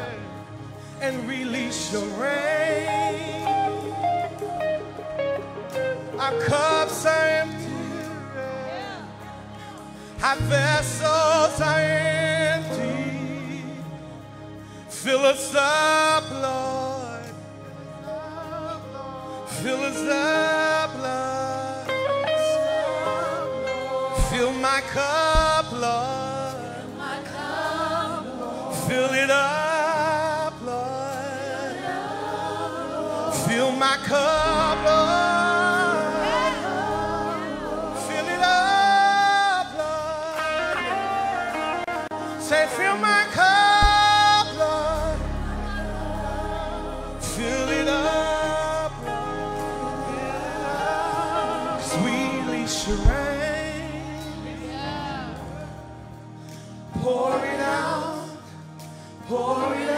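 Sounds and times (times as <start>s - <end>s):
person singing with vibrato: 0.0s - 59.9s
backing band: 14.6s - 59.9s
deep sustained bass note: 43.8s - 53.4s.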